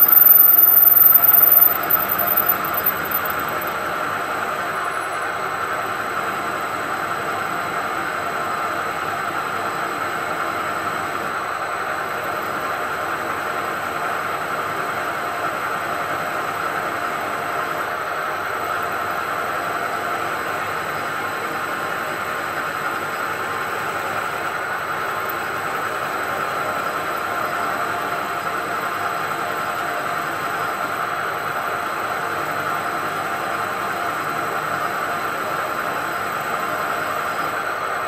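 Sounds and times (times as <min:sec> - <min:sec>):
milling machine spindle whirring: 0:00.0 - 0:06.8.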